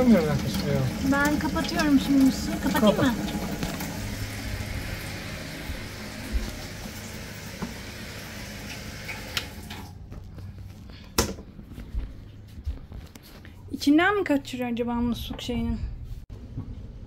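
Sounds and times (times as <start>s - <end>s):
water hissing from leaking fitting: 0.0s - 9.9s.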